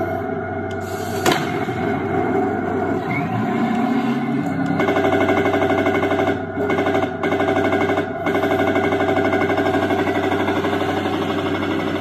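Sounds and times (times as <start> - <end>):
tank engine rumble: 0.0 - 7.2
machine-gun fire effect: 3.9 - 12.0.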